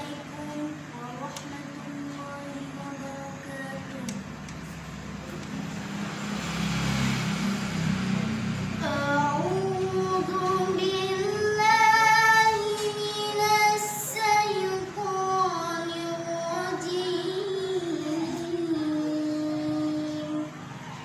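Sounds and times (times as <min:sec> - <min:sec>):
child chanting: 0:00.0 - 0:04.2, 0:08.8 - 0:21.0.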